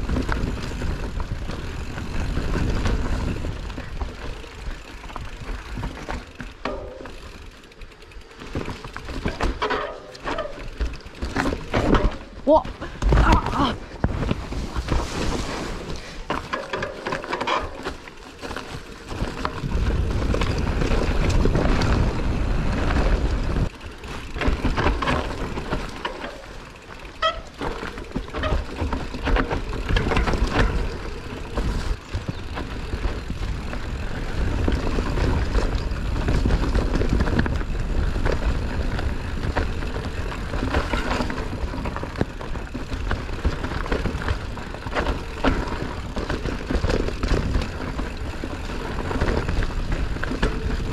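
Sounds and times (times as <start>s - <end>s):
bike rattling over rough ground: 0.0s - 50.9s.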